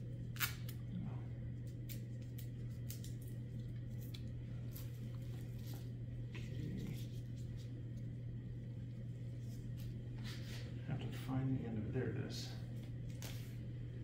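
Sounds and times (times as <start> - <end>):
steady low hum: 0.0 - 14.0
rustling of gloved hands and gown: 3.5 - 8.2.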